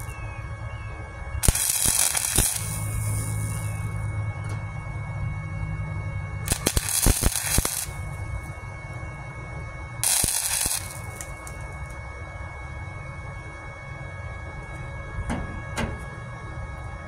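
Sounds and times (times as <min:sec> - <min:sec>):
steady low hum: 0:00.0 - 0:17.0
welder arc crackle: 0:01.4 - 0:04.1, 0:06.4 - 0:08.6, 0:10.0 - 0:12.0.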